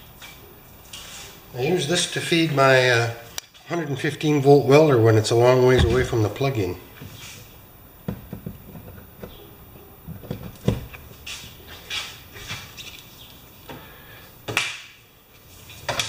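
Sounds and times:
extension cord knocking and rubbing: 5.8s - 6.3s, 8.0s - 9.4s, 10.1s - 11.1s.

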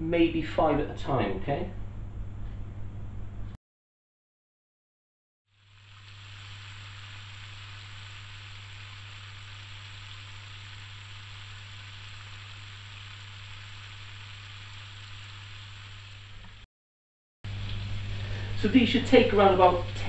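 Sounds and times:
steady low hum: 0.0s - 3.6s, 5.7s - 16.6s, 17.5s - 20.0s
chicken sizzling in hot oil: 5.5s - 16.7s, 17.5s - 20.0s.

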